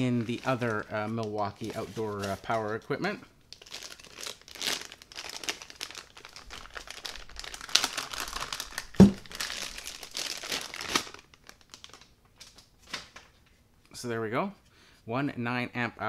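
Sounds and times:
plastic bag crinkling: 0:00.0 - 0:02.9, 0:03.5 - 0:13.2.

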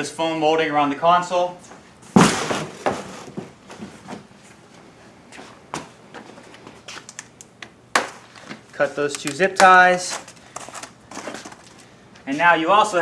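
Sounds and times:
footsteps: 0:01.6 - 0:07.3
loud rustling knock: 0:02.1 - 0:04.3.

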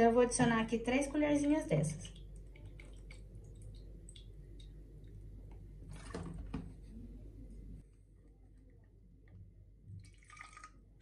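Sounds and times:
plastic bottle handling: 0:05.8 - 0:06.9.

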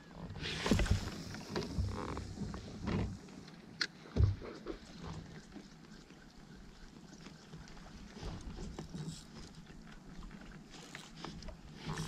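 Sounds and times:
gear knocking and creaking on kayak: 0:00.0 - 0:12.0
dull thump: 0:04.1 - 0:04.4.

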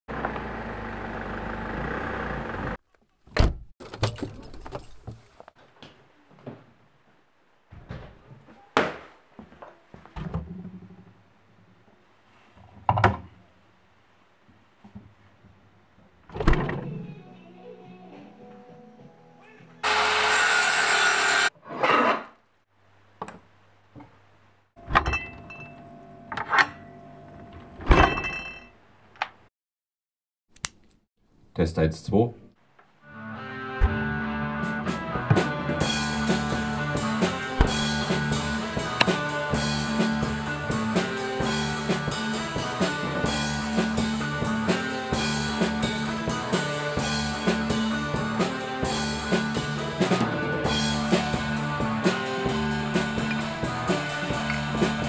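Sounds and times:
car engine running: 0:00.1 - 0:02.8
keys jangling at door lock: 0:03.8 - 0:05.2
boot footsteps on hard floor: 0:07.7 - 0:10.2.

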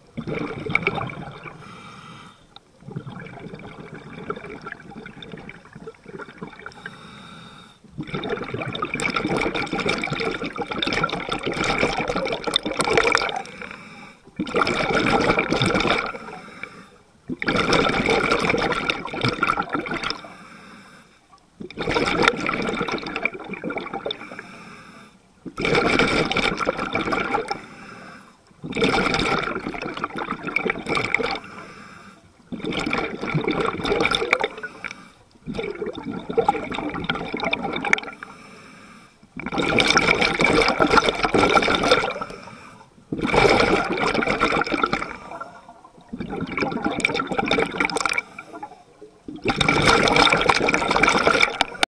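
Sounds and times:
scuba regulator bubbling exhale: 0:00.0 - 0:20.6, 0:21.6 - 0:51.9
quiet inhale through regulator: 0:01.4 - 0:02.9, 0:06.5 - 0:08.0, 0:13.3 - 0:15.0, 0:16.0 - 0:17.2, 0:20.0 - 0:21.4, 0:24.0 - 0:25.5, 0:27.3 - 0:28.8, 0:31.2 - 0:32.6, 0:34.3 - 0:35.7, 0:37.9 - 0:39.4, 0:41.5 - 0:43.2, 0:44.6 - 0:46.1, 0:48.0 - 0:49.2.

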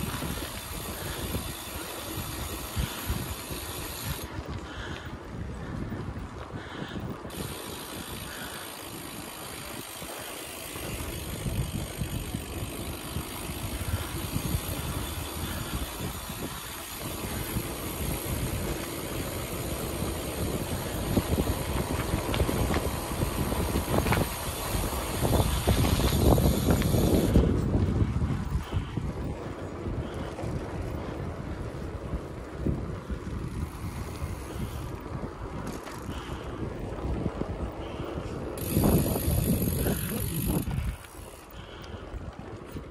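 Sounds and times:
bicycle tyre noise: 0:00.0 - 0:42.9
wind buffeting microphone: 0:00.0 - 0:42.9.

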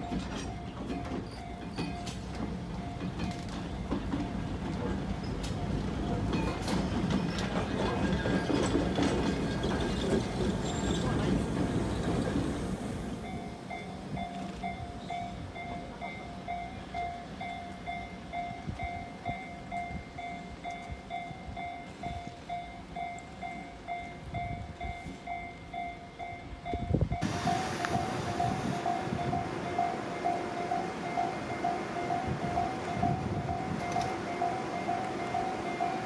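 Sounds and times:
train rumble: 0:00.0 - 0:36.0
level crossing alarm ringing: 0:13.2 - 0:36.0
wind noise on microphone: 0:26.5 - 0:29.6, 0:32.1 - 0:34.2.

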